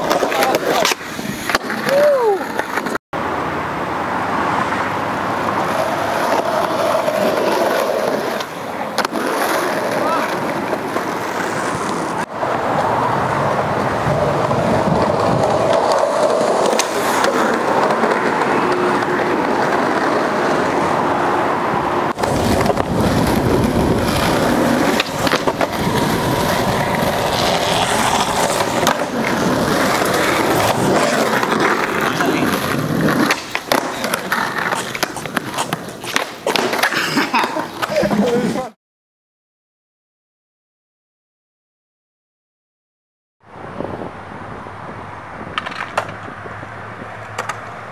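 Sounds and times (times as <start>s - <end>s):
skateboard clacks: 0.0s - 3.0s, 5.4s - 20.8s, 22.1s - 38.8s, 45.5s - 46.3s, 47.1s - 47.9s
skateboard wheels rolling: 0.0s - 38.8s, 43.5s - 47.9s.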